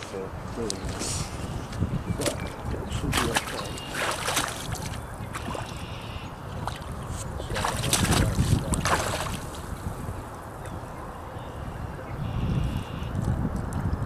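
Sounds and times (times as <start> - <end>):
wind rumble on microphone: 0.0 - 14.0
boots sloshing through muddy water: 3.1 - 9.7.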